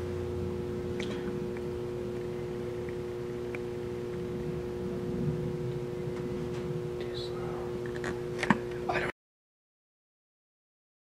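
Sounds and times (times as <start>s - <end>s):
low rumble: 0.0s - 8.4s
steady two-tone hum: 0.0s - 9.1s.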